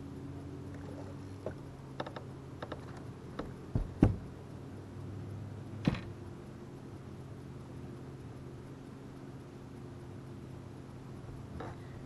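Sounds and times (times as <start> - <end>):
low hum: 0.0 - 12.0
heavy thumps on deck: 3.7 - 4.3.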